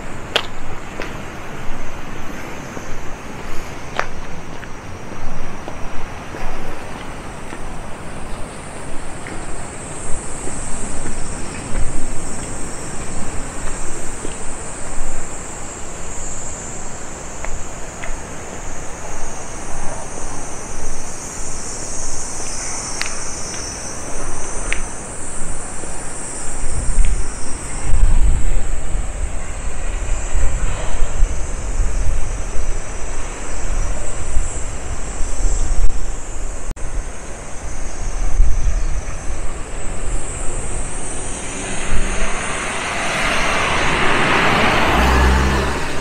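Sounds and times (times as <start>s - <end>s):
insects trilling: 0.0s - 46.0s
rushing background noise: 0.0s - 46.0s
low rumbling: 38.2s - 46.0s.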